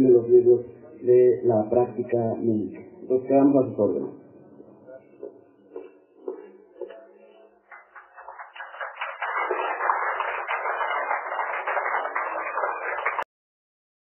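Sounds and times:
audience applauding: 7.7 - 13.3.

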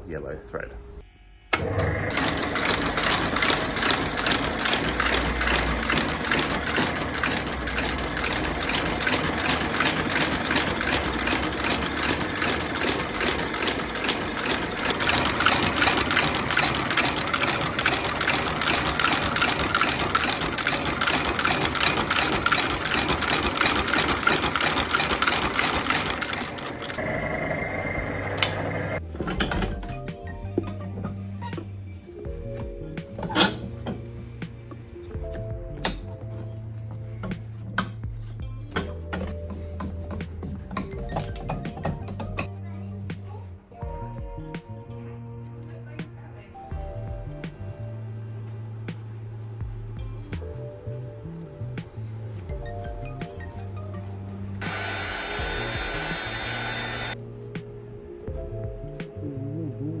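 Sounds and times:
stitching machine running: 1.5 - 29.0, 54.6 - 57.2.

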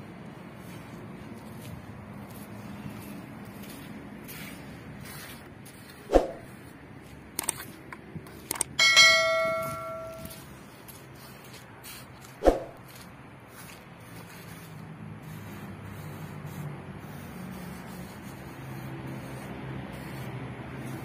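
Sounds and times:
metallic clang ringing like a bell: 8.8 - 10.4.

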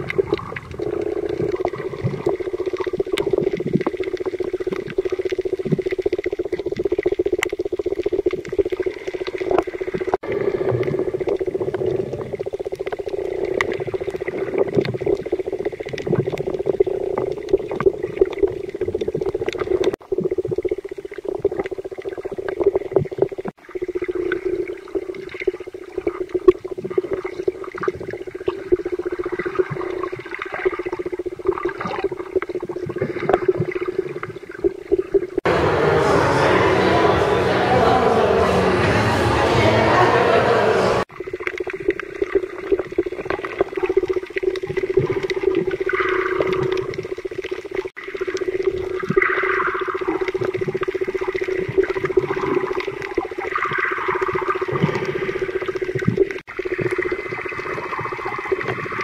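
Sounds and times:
crackling clicks: 0.0 - 24.4
underwater water movement: 0.0 - 38.8, 39.8 - 59.0
steady underwater hum: 0.0 - 59.0.

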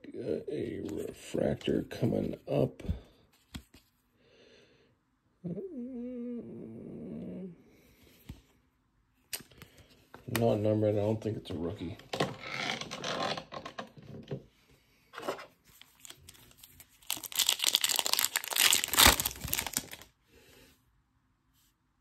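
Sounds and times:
card pack wrapper crinkling: 15.7 - 20.1
wrapper tearing: 15.8 - 20.1.

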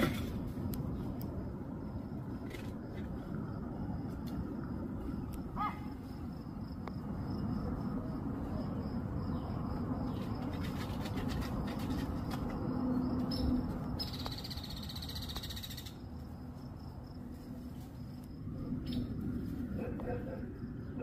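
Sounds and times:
steady low rumble: 0.0 - 10.5, 15.9 - 21.0.

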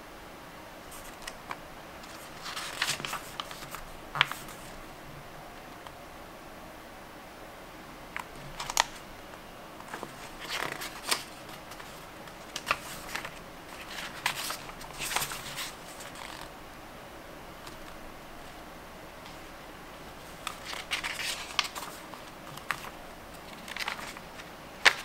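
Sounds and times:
paper pages rustling: 0.9 - 4.8, 8.2 - 9.0, 9.8 - 16.5, 20.2 - 25.0.

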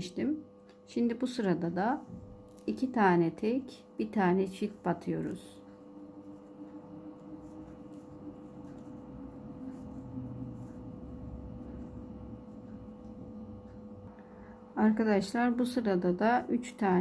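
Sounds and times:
steady hum: 0.0 - 17.0
crochet hook rustling yarn: 5.2 - 13.8.

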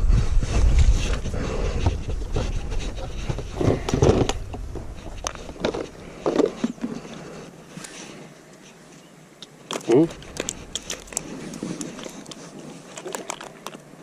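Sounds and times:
wind buffeting microphone: 0.0 - 6.3.

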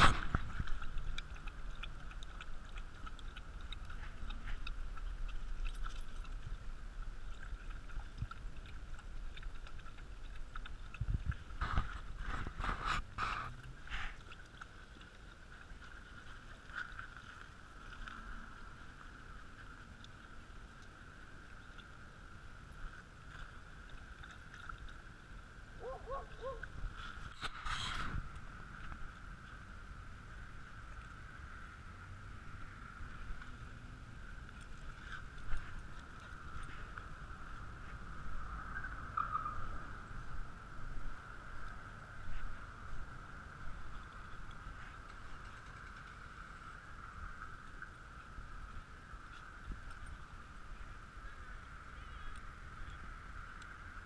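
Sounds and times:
dog lapping water from metal bowl: 0.0 - 18.0.

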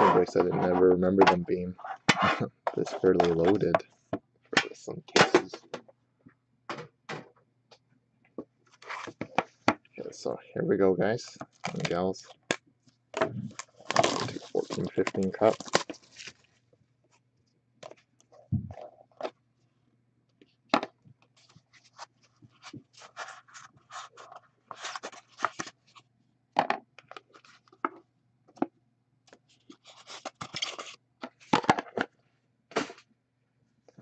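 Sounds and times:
card box scrapes and rustles: 21.4 - 25.8.

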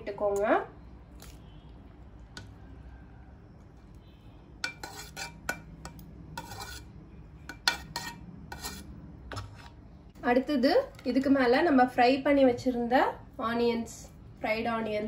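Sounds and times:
metal skimmer scraping a pot: 4.6 - 6.9.

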